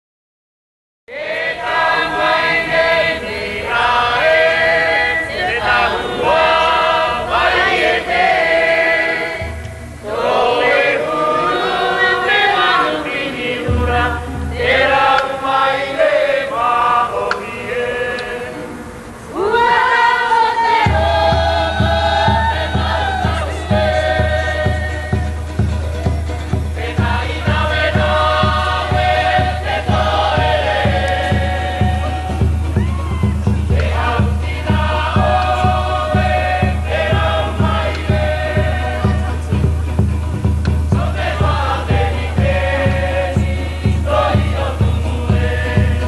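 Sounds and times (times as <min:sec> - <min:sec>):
choir singing in several voices: 0:01.1 - 0:39.7, 0:40.7 - 0:46.0
low regular drumbeat: 0:13.6 - 0:15.4, 0:20.9 - 0:46.0.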